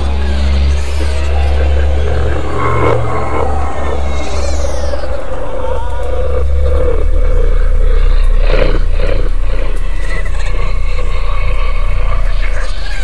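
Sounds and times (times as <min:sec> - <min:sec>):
deep droning rumble: 0:00.0 - 0:13.0
rough animal-like voice sounds: 0:00.0 - 0:13.0.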